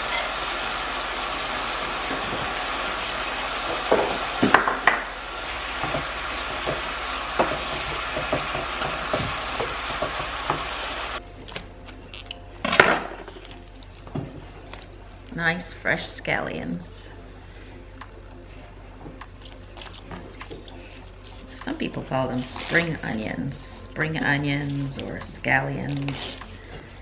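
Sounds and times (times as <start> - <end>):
food sizzling in frying pan: 0.0 - 11.2.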